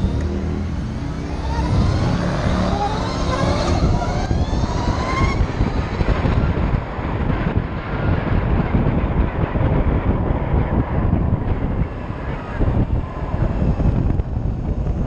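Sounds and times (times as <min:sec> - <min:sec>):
electric motor whine: 0:00.0 - 0:07.5
wind rush on microphone: 0:00.0 - 0:15.0.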